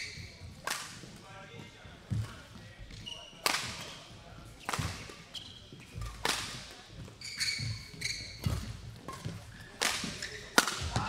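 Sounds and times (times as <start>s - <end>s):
shoes squeaking on floor: 0.0s - 0.6s, 1.2s - 11.0s
racket striking shuttlecock: 8.4s - 11.0s.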